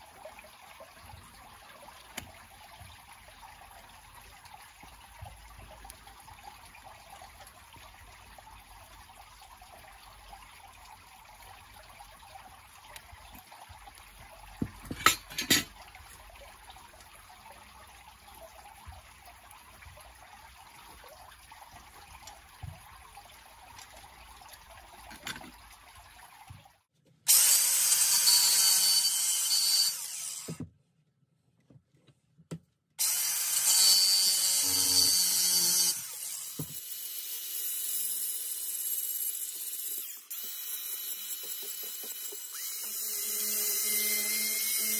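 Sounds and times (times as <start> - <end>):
angle grinder cutting metal: 27.3 - 30.6, 33.0 - 44.9.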